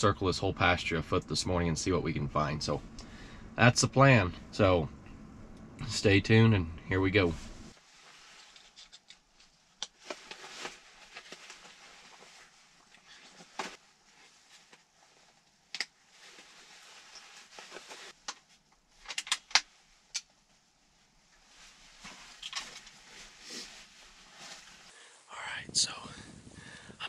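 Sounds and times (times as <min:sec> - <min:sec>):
soft rustles: 0:07.2 - 0:19.0, 0:19.7 - 0:25.1.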